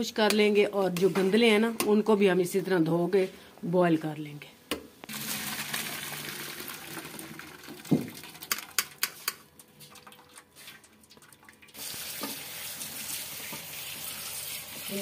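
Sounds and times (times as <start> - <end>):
water splashing into metal sink: 5.1 - 9.1, 9.8 - 15.0.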